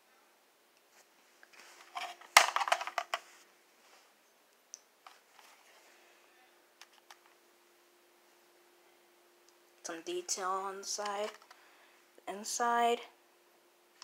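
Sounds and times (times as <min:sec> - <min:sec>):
plastic toy clattering and rustling: 0:01.6 - 0:03.3, 0:11.0 - 0:11.6.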